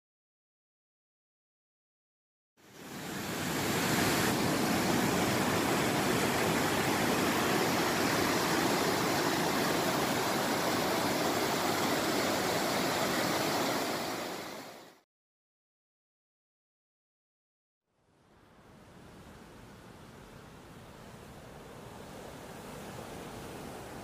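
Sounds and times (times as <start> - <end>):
fast water rushing over rocks: 2.7 - 15.0.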